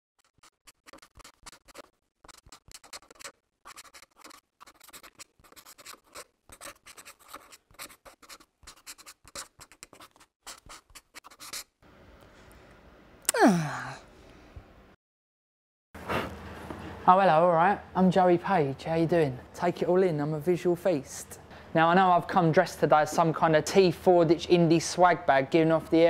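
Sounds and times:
marker pen scratching on paper: 0:00.2 - 0:11.7.

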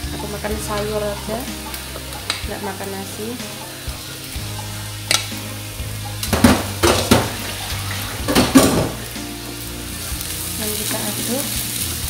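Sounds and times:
pot scraping against frying pan: 0:06.2 - 0:09.2.

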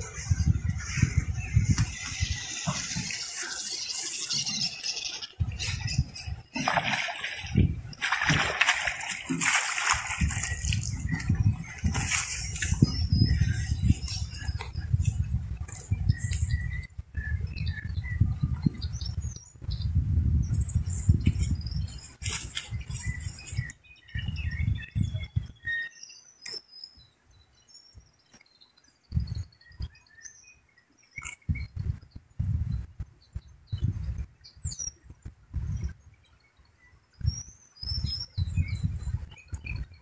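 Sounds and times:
pattering and rustling on grass: 0:00.0 - 0:16.5, 0:20.9 - 0:23.7
wind rumbling on microphone: 0:00.0 - 0:25.9, 0:29.0 - 0:30.1, 0:31.1 - 0:40.0
small birds chirping: 0:00.0 - 0:40.0.

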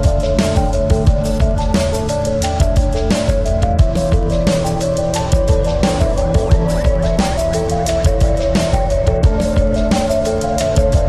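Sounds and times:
background music with beat: 0:00.0 - 0:11.0.

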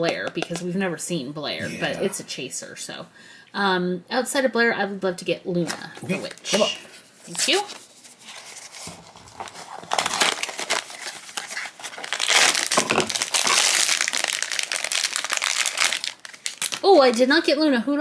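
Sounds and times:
foil bag crinkling: 0:08.3 - 0:17.3.

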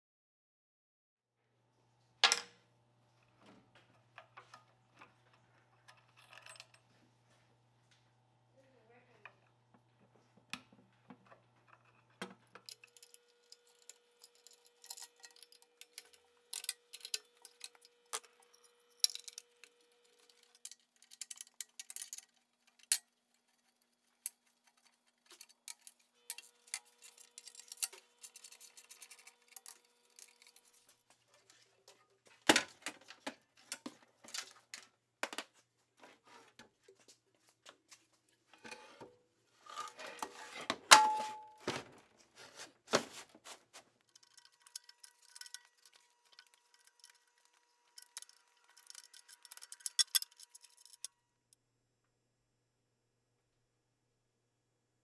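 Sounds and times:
metallic tool clicks and scrapes: 0:12.6 - 0:31.0, 0:44.0 - 0:51.1.

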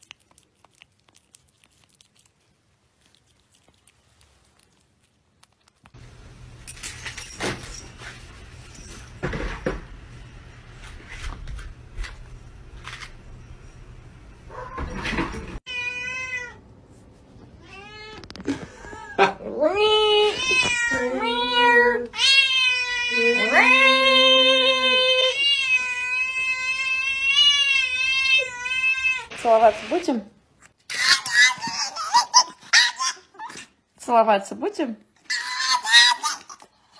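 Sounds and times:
cat meowing loudly: 0:15.7 - 0:16.6, 0:20.3 - 0:23.8.

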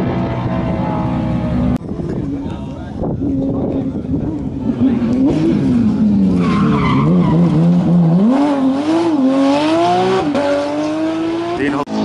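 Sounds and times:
rally car engine revving: 0:00.0 - 0:12.0.

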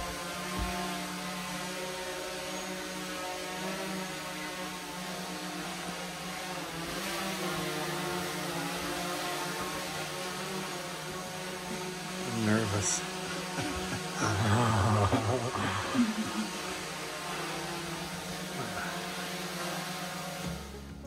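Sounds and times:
drone propellers whirring: 0:00.0 - 0:21.0.

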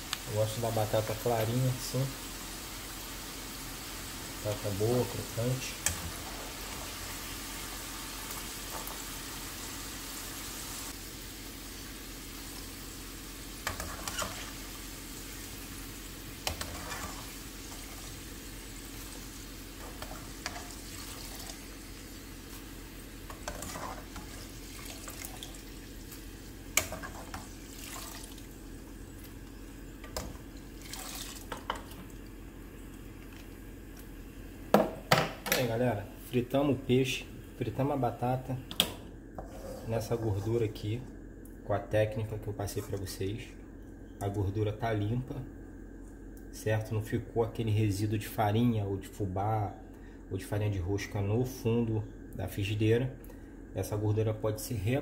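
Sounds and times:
potatoes sizzling in hot oil: 0:00.0 - 0:32.1.

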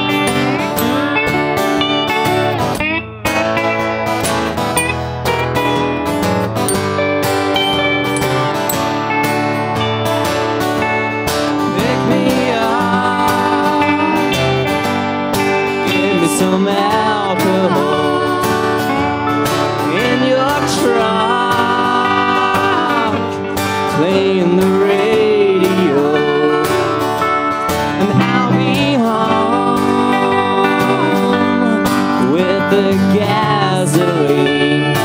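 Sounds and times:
acoustic guitar strumming: 0:00.0 - 0:35.0
wavering melody line: 0:04.8 - 0:06.0, 0:06.6 - 0:08.9.

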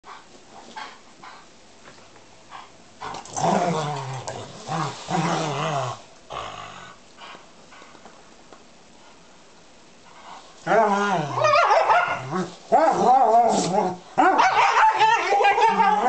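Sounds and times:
dogs play-growling: 0:00.1 - 0:08.0, 0:10.1 - 0:14.4
rustling: 0:00.2 - 0:06.0, 0:10.0 - 0:16.0.

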